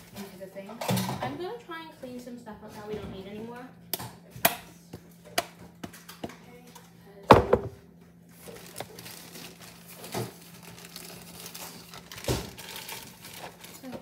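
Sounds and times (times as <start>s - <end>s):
items tapping on a counter: 7.3s - 7.8s
loud double knock: 7.3s - 7.8s.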